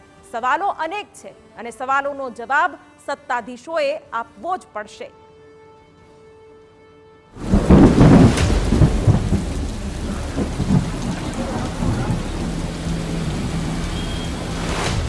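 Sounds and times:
faint background music: 0.0s - 15.0s
heavy rain: 7.4s - 15.0s
thunder crack: 7.4s - 15.0s.

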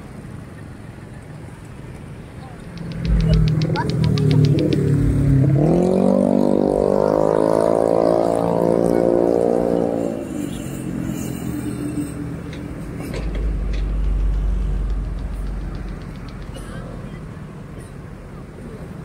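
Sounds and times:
deep rumble of heavy truck: 0.0s - 19.0s
passing vehicle engine accelerating: 2.6s - 10.3s, 10.9s - 17.7s.

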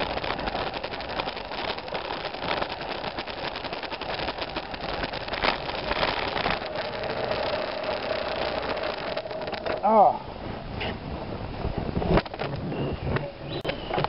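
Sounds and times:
motorcycle engine running: 0.0s - 10.7s
motorcycle rattling over rocks: 0.0s - 14.0s
wind on microphone: 0.0s - 14.0s.

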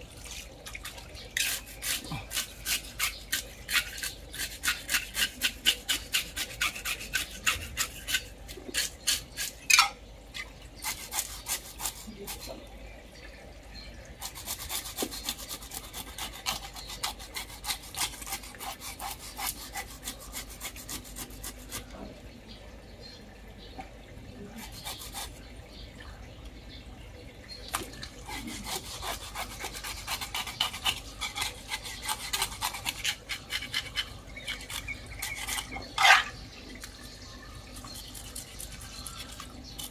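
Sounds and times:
knife scraping fish scales: 1.4s - 9.9s, 10.8s - 12.5s, 14.2s - 21.9s, 24.6s - 25.4s, 28.2s - 36.4s, 37.8s - 39.9s.

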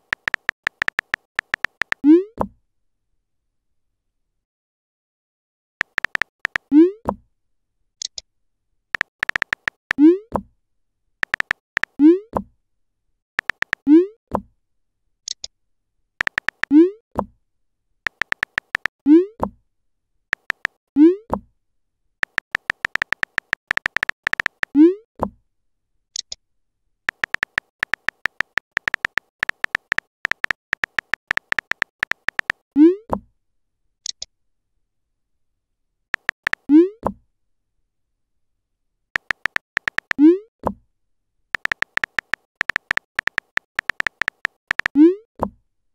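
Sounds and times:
rapid keyboard taps: 0.0s - 2.0s, 5.8s - 6.6s, 9.0s - 10.0s, 11.2s - 11.9s, 13.4s - 13.8s, 16.2s - 16.7s, 18.1s - 18.9s, 20.3s - 20.8s, 22.2s - 24.7s, 27.1s - 32.6s, 36.2s - 36.7s, 39.2s - 40.2s, 41.6s - 45.0s.

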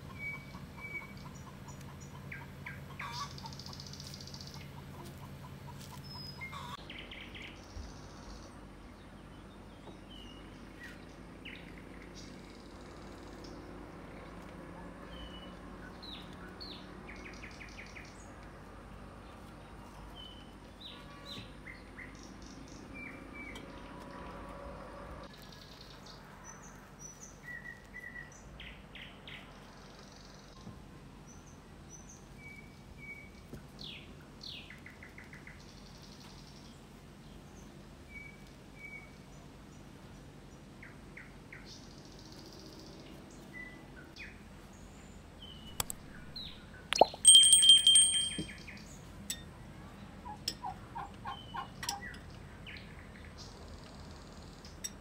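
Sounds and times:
small birds chirping: 0.0s - 24.2s, 25.3s - 49.1s
sharp clicks: 45.7s - 47.3s
loud ringing sound: 47.0s - 48.6s.

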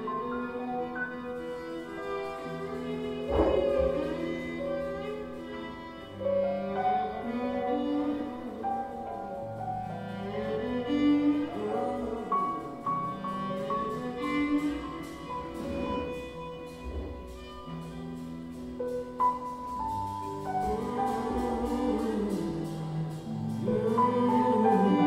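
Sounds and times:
instrumental music with held notes: 0.0s - 25.0s.

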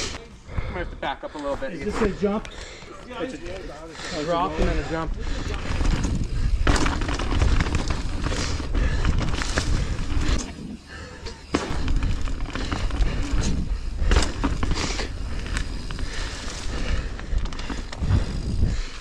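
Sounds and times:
bike clattering over bumps: 4.4s - 19.0s
wind buffeting microphone: 4.5s - 11.0s, 11.7s - 19.0s
tyres rolling over dirt and leaves: 4.6s - 18.7s.

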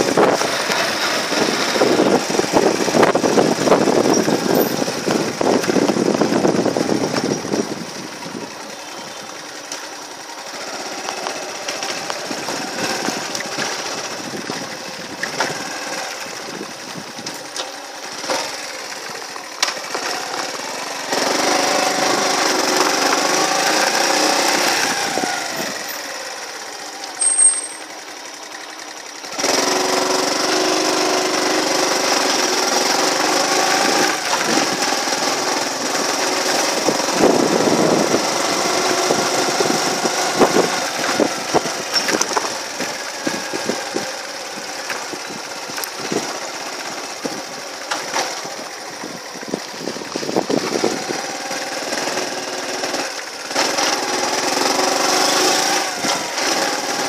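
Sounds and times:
small motorbike engine running: 0.0s - 57.0s.

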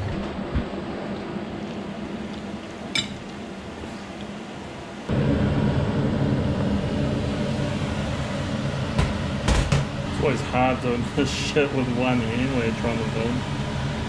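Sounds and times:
pot boiling hard: 5.1s - 14.0s.

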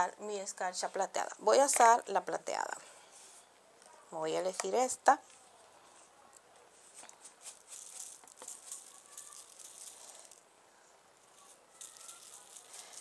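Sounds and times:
glitter shaker rattling: 6.9s - 10.5s, 11.2s - 13.0s.

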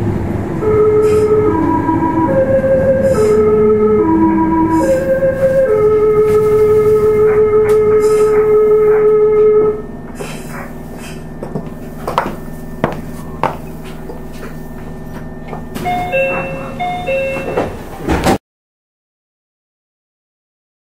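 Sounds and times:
low steady hum: 0.0s - 17.8s
train motor electrical whine: 0.0s - 18.2s
two-note chime: 15.8s - 17.7s.

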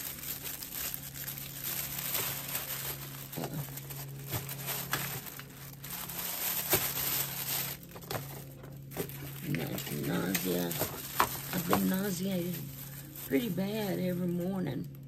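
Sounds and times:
low steady hum: 0.0s - 15.0s
plastic packaging crinkling: 0.0s - 15.0s.

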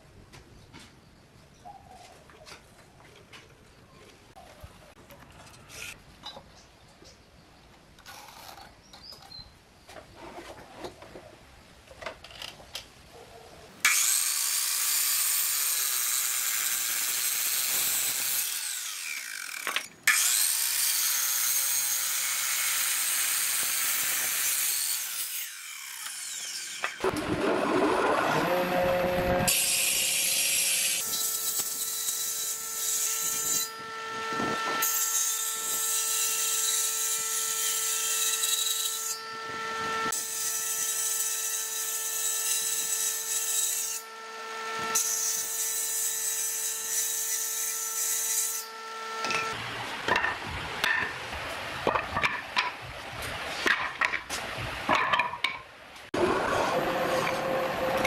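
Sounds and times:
miter saw cutting wood: 13.8s - 49.6s, 56.2s - 58.0s.

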